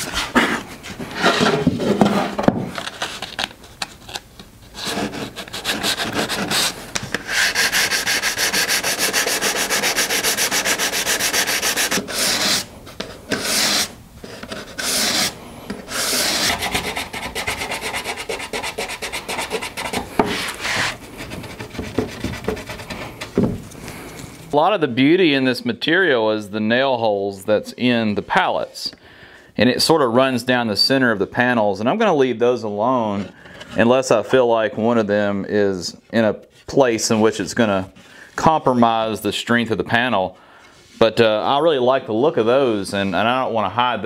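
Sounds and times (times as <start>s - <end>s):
hand sanding wood with sandpaper: 4.8s - 12.7s, 13.3s - 23.2s.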